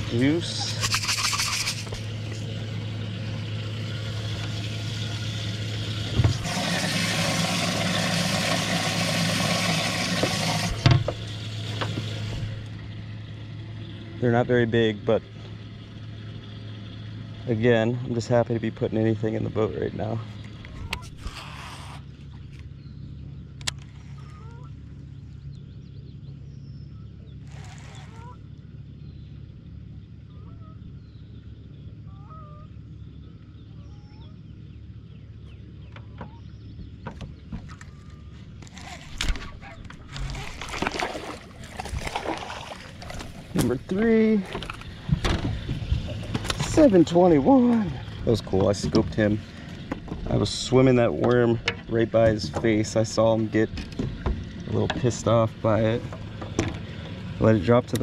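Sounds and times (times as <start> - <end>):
pump humming: 0.0 - 13.1, 37.6 - 51.2
water rushing into a tank: 6.3 - 12.3, 40.2 - 43.6
birds whistling calls: 20.7 - 38.6.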